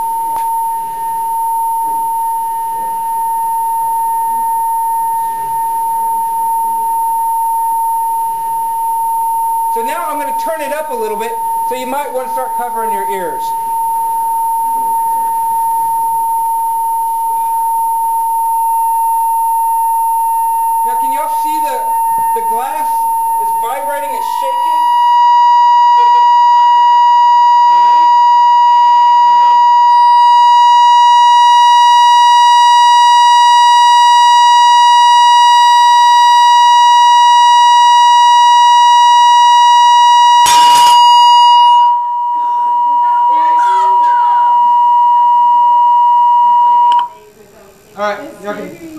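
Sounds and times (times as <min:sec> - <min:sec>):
steady high tone from loudspeaker: 0:09.4 - 0:18.0, 0:20.7 - 0:44.8, 0:46.9 - 0:48.9
glass beaker shattering: 0:40.4 - 0:41.4.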